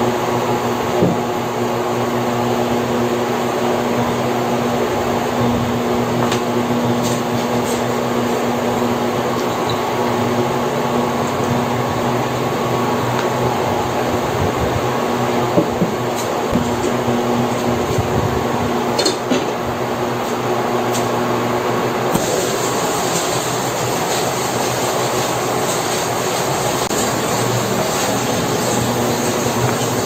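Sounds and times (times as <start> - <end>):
broth boiling: 22.1 - 30.0.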